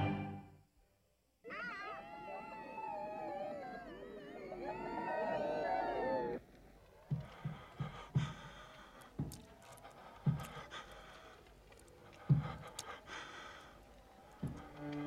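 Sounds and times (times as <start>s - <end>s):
person breathing heavily: 7.1s - 15.0s
short low thuds: 12.2s - 13.0s.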